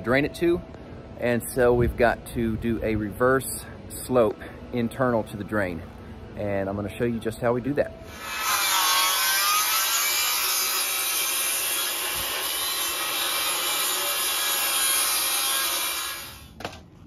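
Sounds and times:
circular saw cutting wood: 8.1 - 16.6.

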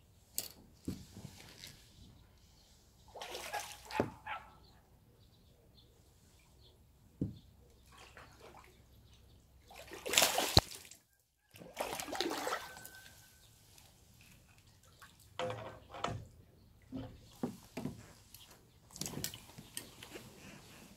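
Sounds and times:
water splashing from hooked fish: 3.1 - 4.0, 7.9 - 8.8, 9.6 - 13.2
fishing line slicing water: 3.1 - 4.2, 9.6 - 11.0, 11.6 - 13.2.

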